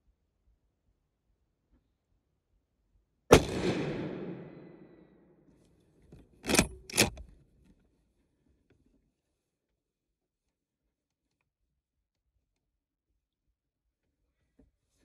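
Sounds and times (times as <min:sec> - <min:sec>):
rifle shot with echo: 0:03.3 - 0:05.2
rifle bolt clacks: 0:06.1 - 0:07.4.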